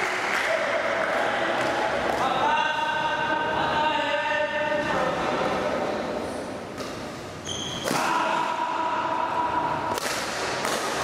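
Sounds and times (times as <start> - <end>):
racket striking shuttlecock: 9.9 - 11.0.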